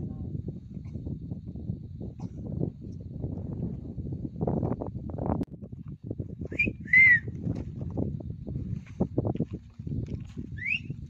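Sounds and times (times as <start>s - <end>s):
high whistled notes: 6.5s - 7.3s, 10.6s - 10.9s
quick rising whistle: 6.5s - 7.3s, 10.6s - 10.9s
footsteps on loose rock: 7.3s - 10.6s.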